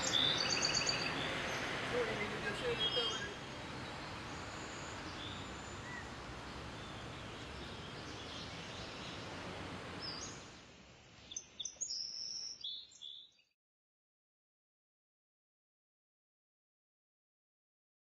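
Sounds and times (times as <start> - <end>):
forest ambience hiss: 0.0 - 13.2.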